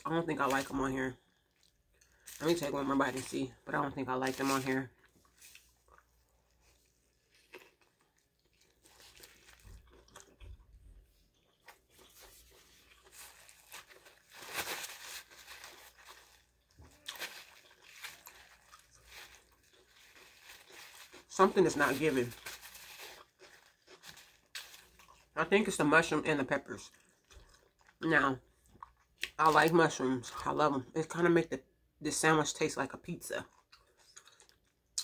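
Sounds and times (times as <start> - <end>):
close-up chewing: 4.9 - 21.3, 22.2 - 25.4, 26.8 - 29.4, 33.5 - 35.0.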